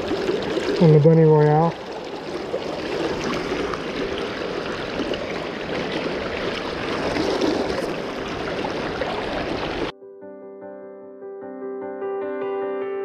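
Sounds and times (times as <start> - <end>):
river rushing and splashing: 0.0 - 9.9.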